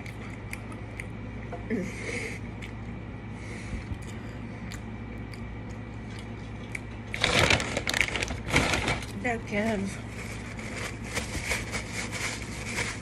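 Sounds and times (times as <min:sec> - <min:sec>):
faint chewing: 0:00.0 - 0:07.2
paper napkins rustling: 0:07.2 - 0:13.0.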